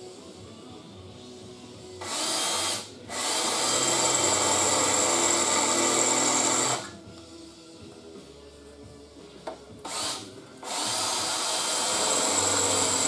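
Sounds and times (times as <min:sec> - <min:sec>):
electric drill whining on steel: 0:02.0 - 0:07.0, 0:09.8 - 0:13.0.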